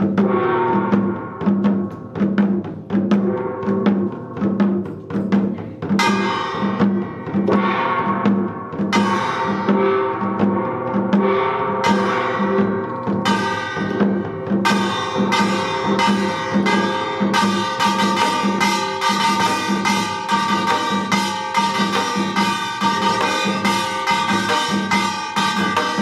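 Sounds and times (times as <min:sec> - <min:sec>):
steady drum beat: 0:00.0 - 0:26.0
small gong ringing: 0:07.6 - 0:26.0.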